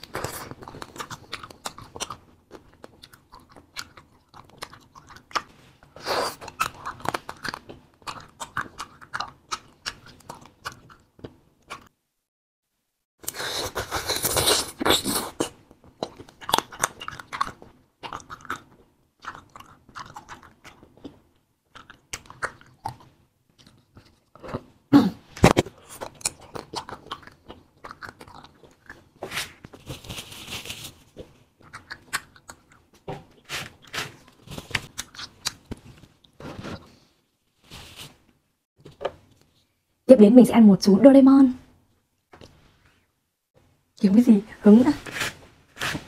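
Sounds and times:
crunchy chewing of candy: 0.0 - 11.9, 13.2 - 24.7, 25.4 - 37.0.

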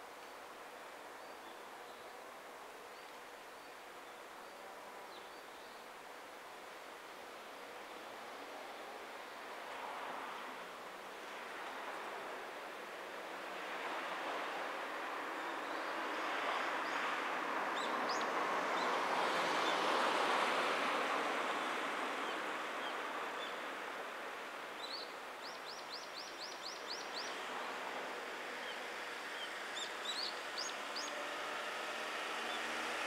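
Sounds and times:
rushing background hiss: 0.0 - 33.0.

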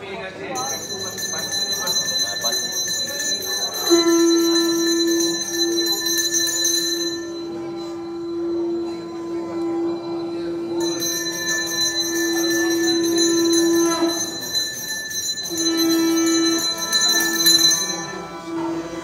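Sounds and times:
hand bell ringing: 0.6 - 7.9, 10.8 - 18.5
conch shell blown: 3.6 - 19.0.

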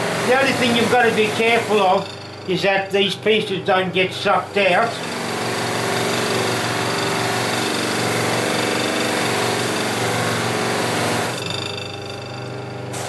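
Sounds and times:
buffer motor hum: 0.0 - 5.2.

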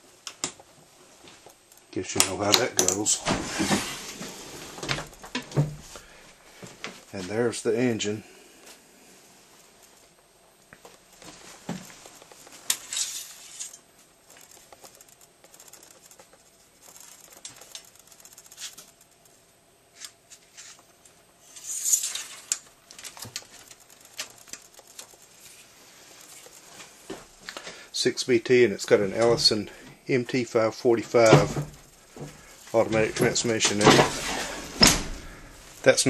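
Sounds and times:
handling noise rustling and clicks: 9.5 - 27.7.

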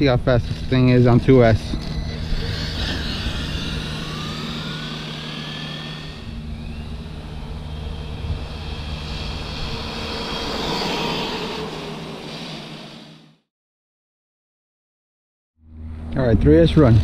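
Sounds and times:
toy truck electric motor whining: 0.4 - 13.4.

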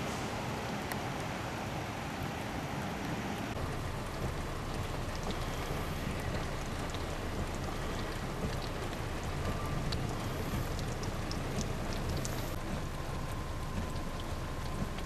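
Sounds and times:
steady rain falling: 0.0 - 15.0
drops ticking on a surface: 3.5 - 15.0.

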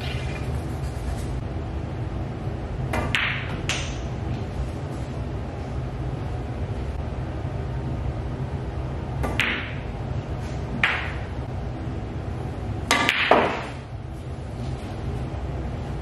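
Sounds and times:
low room hum: 0.0 - 16.0
balls clacking together: 2.9 - 4.1, 10.8 - 11.3, 12.9 - 13.8.

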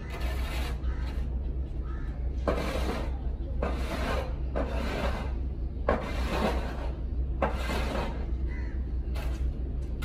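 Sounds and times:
rough scraping strokes: 0.0 - 9.4.

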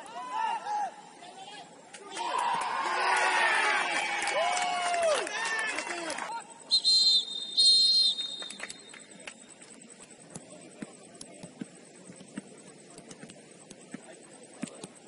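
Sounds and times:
open-air ambience: 0.0 - 15.0
referee's whistle blast: 6.6 - 8.9
faint scattered taps: 9.2 - 15.0.

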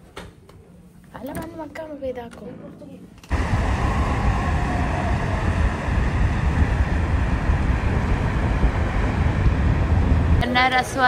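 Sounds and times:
wind buffeting microphone: 3.3 - 11.0.

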